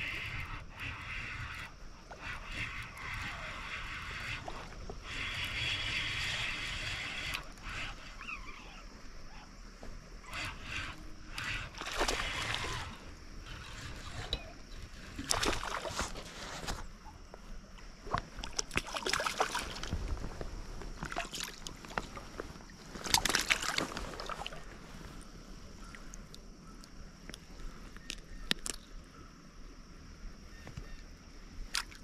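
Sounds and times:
fish splashing at water surface: 0:11.4 - 0:13.0, 0:15.2 - 0:16.3.

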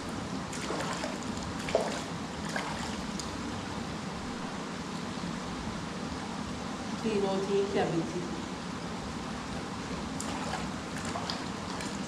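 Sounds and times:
running water: 0:00.4 - 0:03.6, 0:10.0 - 0:12.0.

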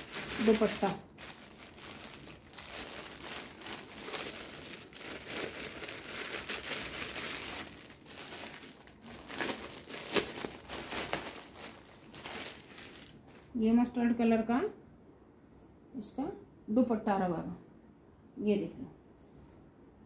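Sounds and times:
plastic bag crinkling: 0:00.0 - 0:13.6.

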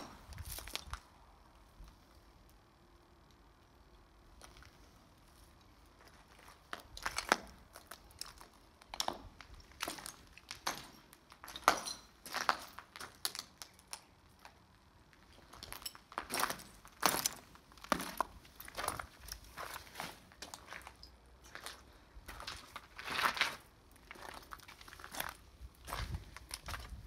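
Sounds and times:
footsteps crunching on debris: 0:00.0 - 0:01.1, 0:05.9 - 0:14.6, 0:15.2 - 0:27.0.

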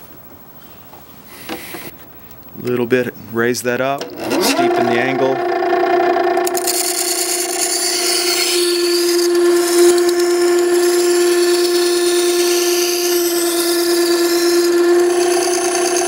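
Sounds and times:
water stone grinder running: 0:04.0 - 0:16.0.

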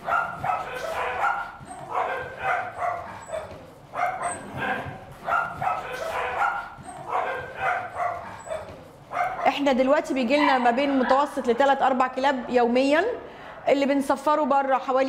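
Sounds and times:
small dogs barking: 0:00.0 - 0:09.6.

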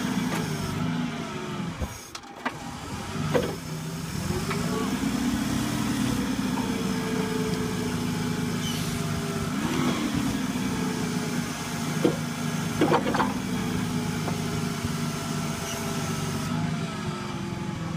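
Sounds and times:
forklift engine idling: 0:02.5 - 0:17.9.

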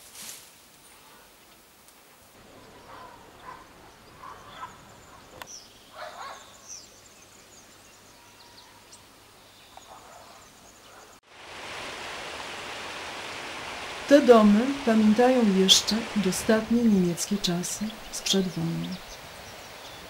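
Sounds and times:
birds chirping: 0:02.4 - 0:11.2, 0:13.0 - 0:20.0
steady rushing noise: 0:11.2 - 0:20.0.

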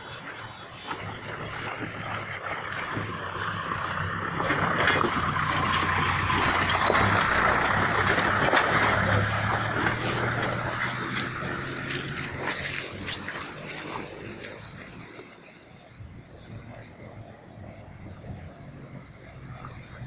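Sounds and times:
tyres splashing through water: 0:00.0 - 0:20.0
vehicle engines humming past: 0:00.0 - 0:20.0.

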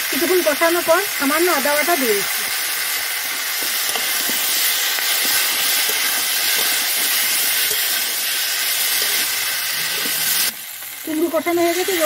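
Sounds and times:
food sizzling in hot oil: 0:00.0 - 0:12.0
metal spatula scraping: 0:03.8 - 0:10.6.

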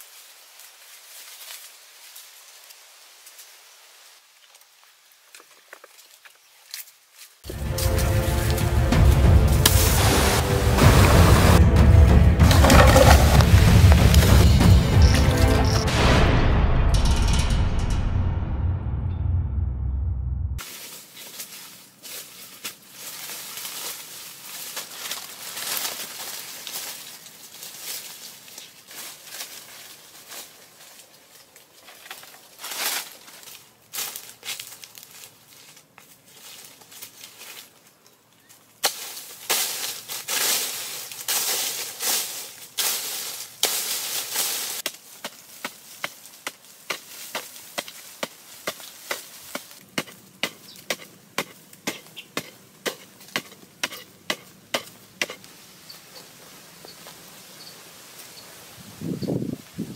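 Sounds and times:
footsteps in leaf litter: 0:00.0 - 0:11.6, 0:12.4 - 0:15.9, 0:20.6 - 0:59.9
digging tool scraping stony earth: 0:12.4 - 0:16.1, 0:38.8 - 0:55.5.

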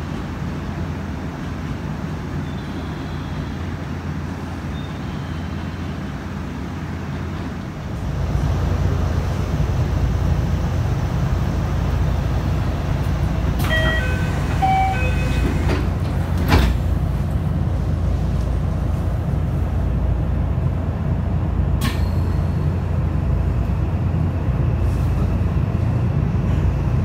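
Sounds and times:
train low hum: 0:00.0 - 0:27.0
sliding doors closing: 0:12.3 - 0:17.5
electronic door chime: 0:13.7 - 0:15.5.

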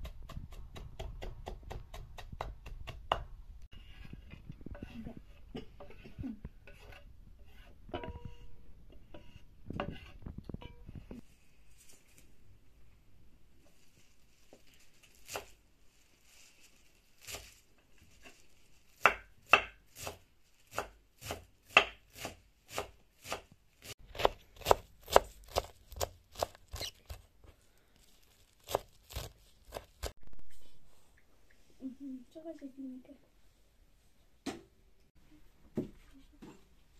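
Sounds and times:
knife chopping herbs on wooden board: 0:00.0 - 0:03.3, 0:19.0 - 0:23.5, 0:24.1 - 0:27.2.

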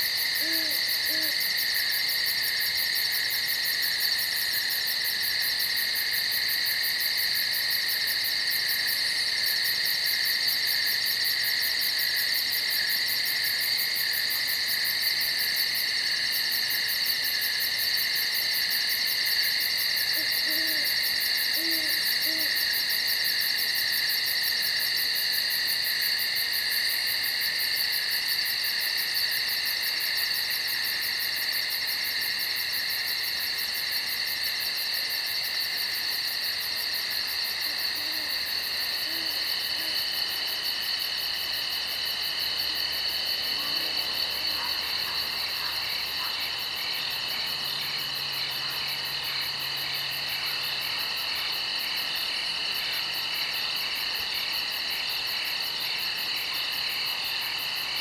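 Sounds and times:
insects droning and trilling: 0:00.0 - 0:58.0
owl hooting: 0:00.4 - 0:01.4, 0:20.2 - 0:22.6, 0:39.0 - 0:40.0.

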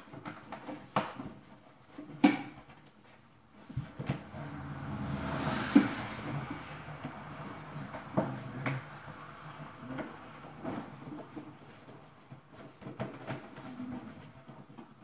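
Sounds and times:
vinyl rustling and scraping: 0:07.0 - 0:15.0.

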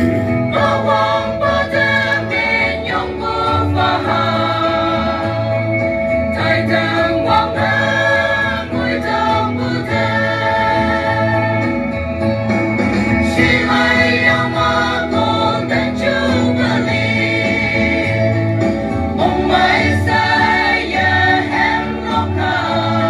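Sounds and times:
mixed choir singing: 0:00.0 - 0:12.2, 0:13.2 - 0:23.0.

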